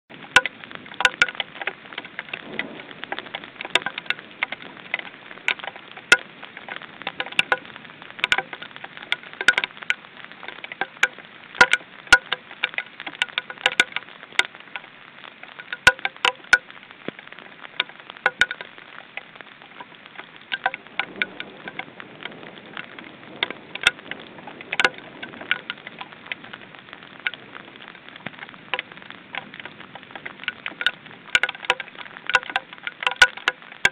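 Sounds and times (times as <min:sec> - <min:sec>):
raindrops ticking near microphone: 0:00.1 - 0:33.9
steady hiss of rain: 0:00.1 - 0:33.9.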